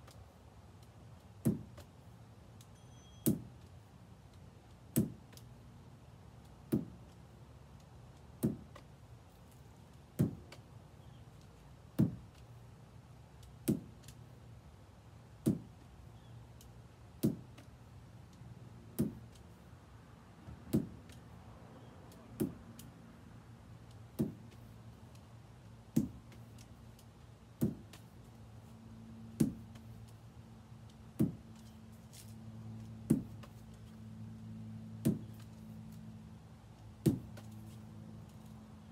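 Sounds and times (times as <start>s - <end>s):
ball landing in lacrosse stick: 37.0s - 37.7s.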